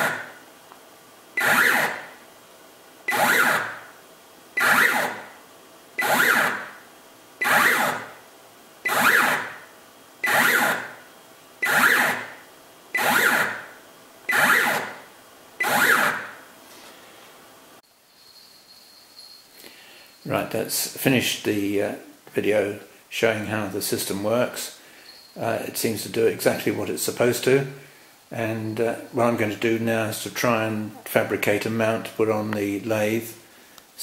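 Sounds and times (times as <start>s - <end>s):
stepper motor whirring: 10.2s - 11.0s.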